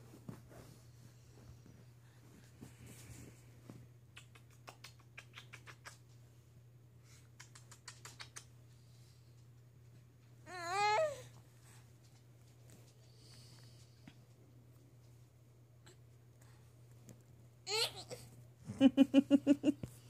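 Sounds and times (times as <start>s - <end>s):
steady low hum: 0.0s - 5.2s.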